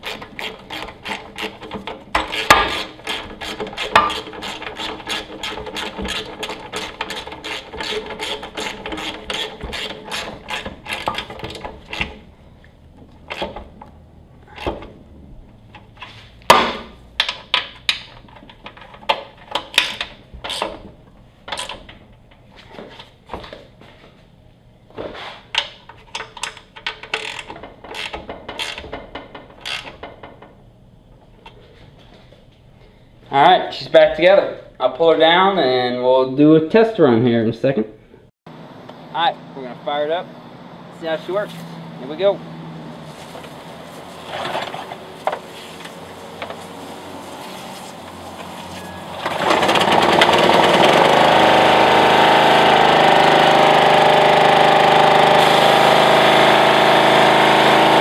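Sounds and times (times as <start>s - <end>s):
bolts clunking: 0.0s - 22.5s
ratchet wrench clicking: 26.2s - 28.9s, 29.6s - 30.0s.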